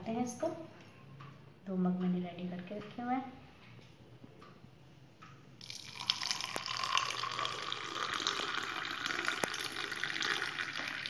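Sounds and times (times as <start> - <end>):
milk pouring into a glass: 5.6 - 11.0.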